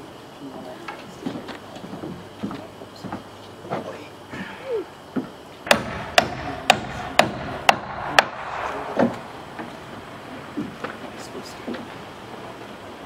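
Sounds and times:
hammer striking nail into wood: 5.7s - 8.4s.

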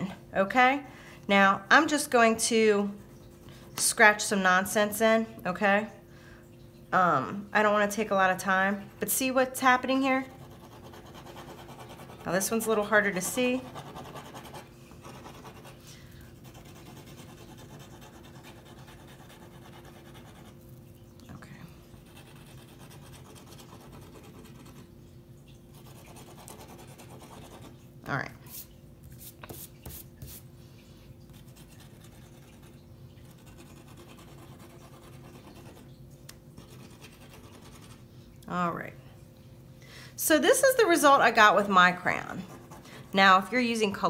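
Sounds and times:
low steady hum: 0.0s - 44.0s
scratching and rubbing on paper: 10.3s - 20.6s, 22.0s - 24.9s, 25.8s - 27.8s, 28.5s - 30.5s, 31.3s - 35.9s, 36.6s - 38.0s
toothpick scratching wax crayon: 10.4s - 12.5s, 13.6s - 15.8s.

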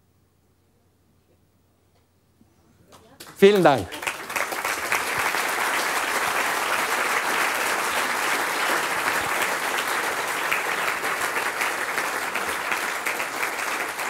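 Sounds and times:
audience applauding: 3.0s - 14.0s.

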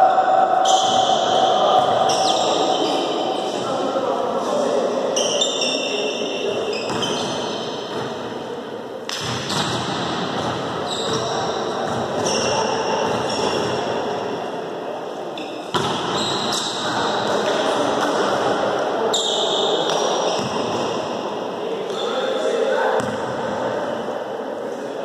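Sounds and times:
murmur of voices: 0.0s - 25.0s
sneakers squeaking on court: 6.7s - 8.2s, 9.4s - 13.8s, 23.0s - 23.3s
volleyball being struck: 9.1s - 11.2s.

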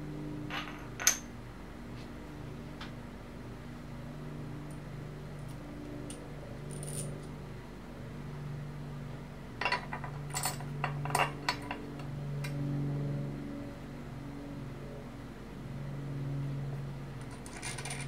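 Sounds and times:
steady low hum: 0.0s - 18.0s
metal bolt and washer clinks: 0.5s - 1.3s, 6.1s - 7.2s, 9.6s - 11.8s.

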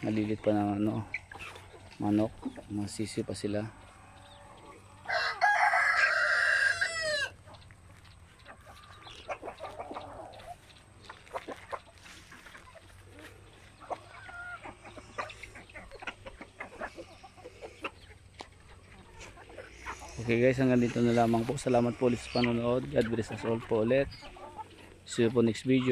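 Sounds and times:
chickens clucking: 0.0s - 25.9s
rooster crowing: 4.2s - 7.4s.

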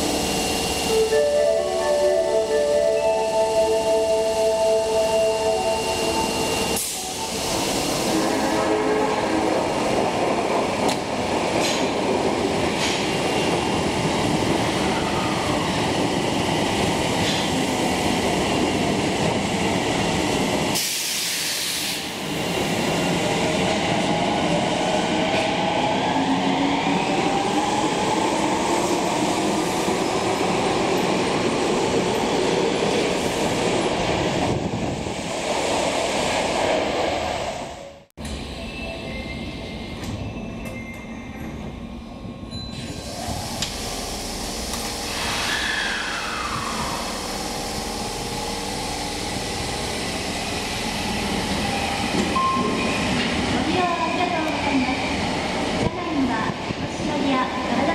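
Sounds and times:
subway motor whine: 0.0s - 35.6s, 37.1s - 57.9s
short burst of hiss: 45.1s - 47.3s.

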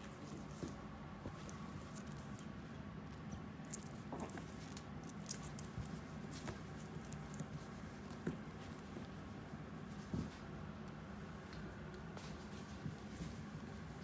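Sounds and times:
puppy claws pattering on wood: 0.2s - 9.2s.

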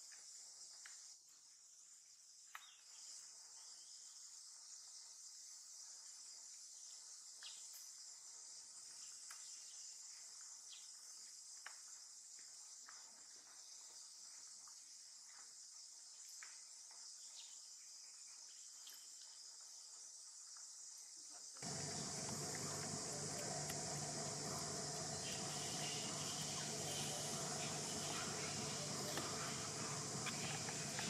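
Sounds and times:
high-pitched insect chorus: 13.6s - 31.0s.

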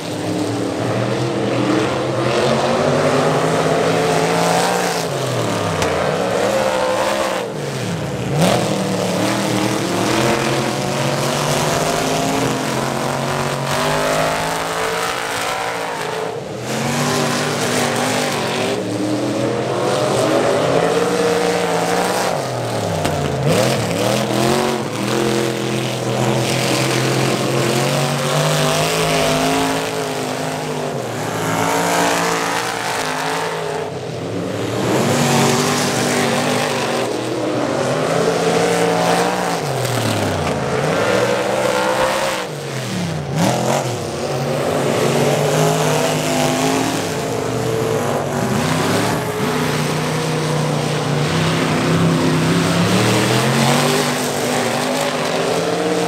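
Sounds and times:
cars passing by: 0.0s - 56.0s
race car engines running hard: 0.0s - 56.0s.

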